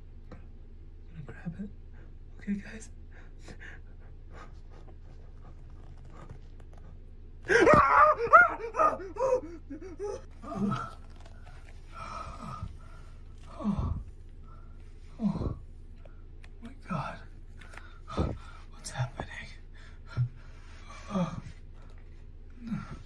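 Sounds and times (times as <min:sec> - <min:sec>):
man yelling in fright: 0:07.5 - 0:10.2
man gasping and panting: 0:07.5 - 0:15.7, 0:17.6 - 0:18.7, 0:19.8 - 0:23.0.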